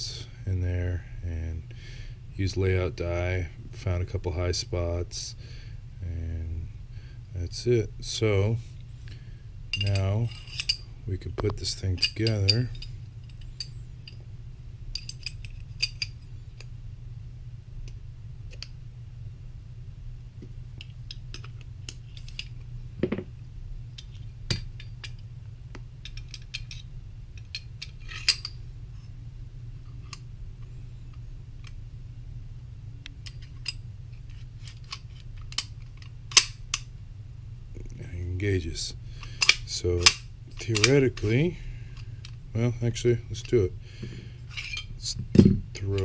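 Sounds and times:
steady low hum: 0:00.0 - 0:46.0
metal gun parts clicking: 0:09.7 - 0:10.8, 0:14.9 - 0:16.2, 0:26.0 - 0:28.6, 0:33.2 - 0:36.9, 0:39.2 - 0:41.4.

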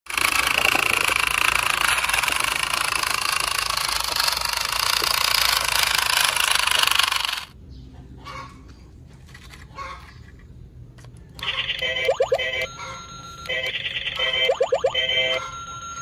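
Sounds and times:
toy truck motor buzzing: 0:00.1 - 0:07.6.

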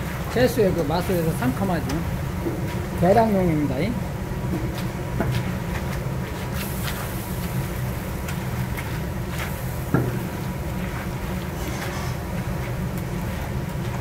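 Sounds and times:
wooden paddle scraping metal: 0:11.6 - 0:12.2.

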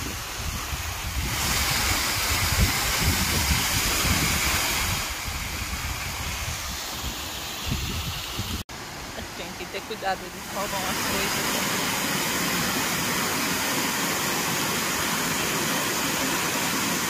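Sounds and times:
wind buffeting microphone: 0:00.0 - 0:08.6
waterfall rushing: 0:00.0 - 0:17.0.

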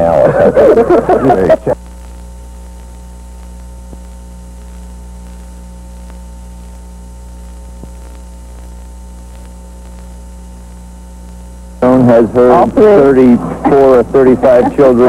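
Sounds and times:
electrical mains hum: 0:00.0 - 0:15.0
faint ticks: 0:01.8 - 0:11.4.

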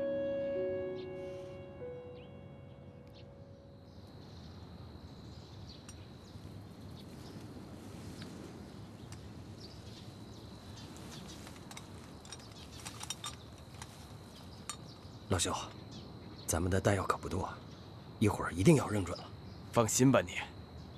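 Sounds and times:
bird chirps: 0:00.0 - 0:07.4
high insect drone: 0:00.0 - 0:07.8.

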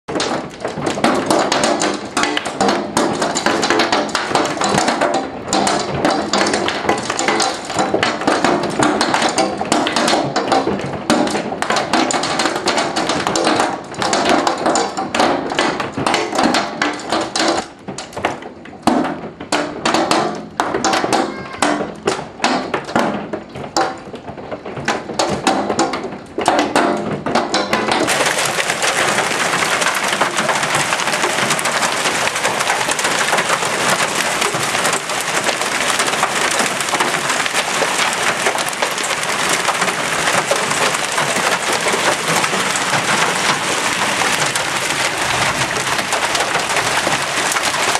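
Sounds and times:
hailstones knocking on hard surfaces: 0:00.1 - 0:47.9
heavy hail hissing: 0:28.1 - 0:47.9.

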